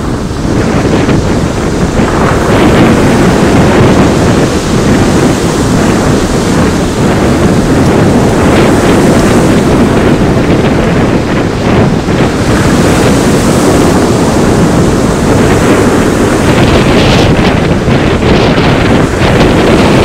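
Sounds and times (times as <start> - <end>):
waves breaking on pebble beach: 0.0 - 20.0
wind buffeting microphone: 0.0 - 20.0.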